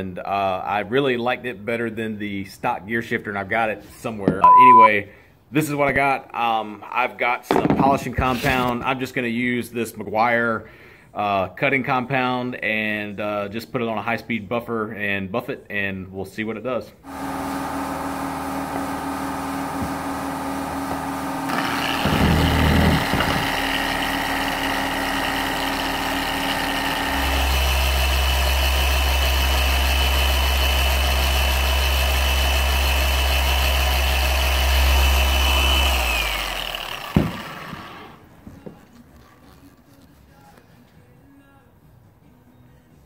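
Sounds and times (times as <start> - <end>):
electric buffer running: 17.0 - 38.6
deep hum: 18.0 - 36.4.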